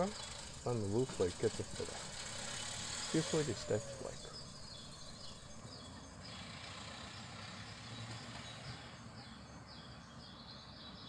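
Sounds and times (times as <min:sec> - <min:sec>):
steady rush of noise: 0:00.0 - 0:05.7
small birds chirping: 0:00.0 - 0:11.0.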